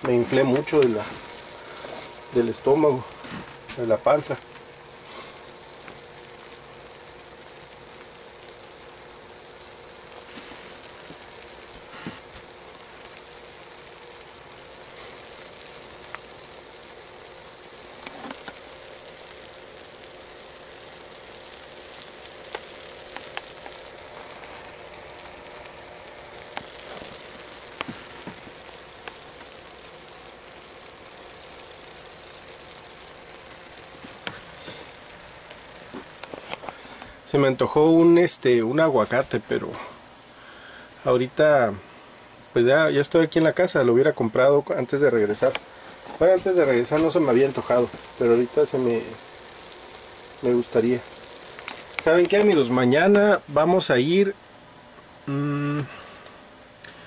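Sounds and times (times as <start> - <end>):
small pops and crackles: 0.0 - 37.2, 45.2 - 53.2
food sizzling in a pan: 0.0 - 42.0, 42.6 - 57.0.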